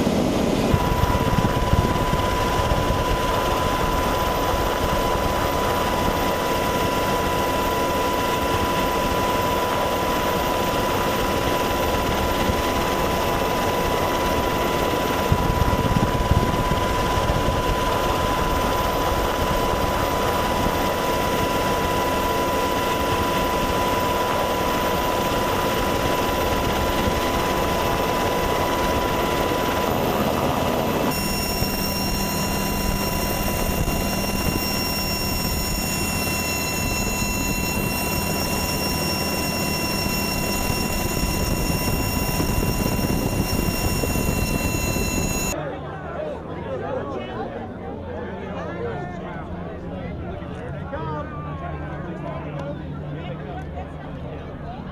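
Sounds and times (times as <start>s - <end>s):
helicopters flying by: 0.0s - 54.9s
helicopters hovering low: 0.0s - 54.9s.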